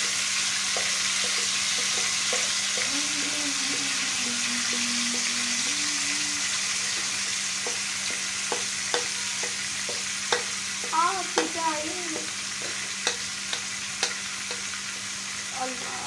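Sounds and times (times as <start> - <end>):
chicken sizzling in hot oil: 0.0 - 16.0
spoon scraping and tapping bowl: 0.8 - 2.9, 6.9 - 10.5, 12.2 - 14.7.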